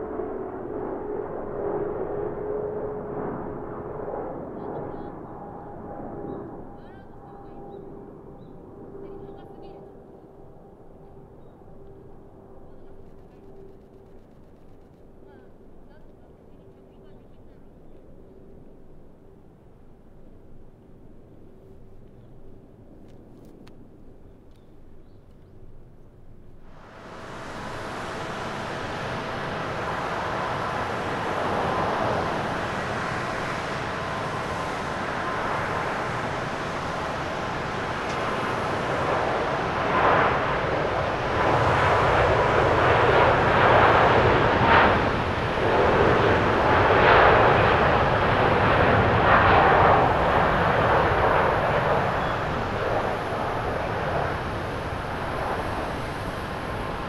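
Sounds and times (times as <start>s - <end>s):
jet airliner taking off: 0.0s - 14.1s, 26.2s - 57.0s.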